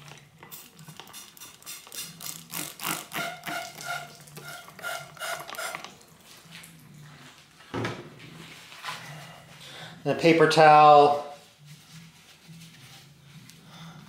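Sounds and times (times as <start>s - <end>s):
spray bottle squirting: 0.4s - 6.0s.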